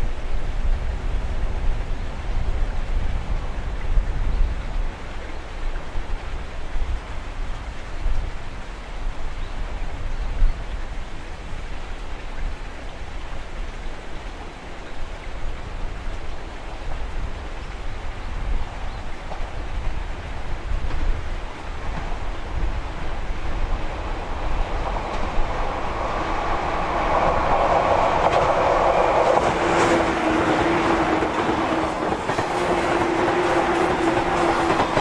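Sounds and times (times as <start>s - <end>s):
wind buffeting microphone: 15.6s - 35.0s
electric train approaching: 21.4s - 35.0s.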